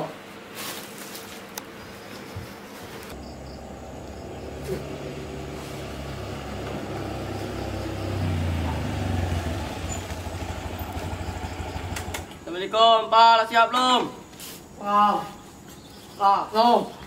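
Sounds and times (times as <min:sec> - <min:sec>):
motor scooter engine running: 0:03.1 - 0:12.4.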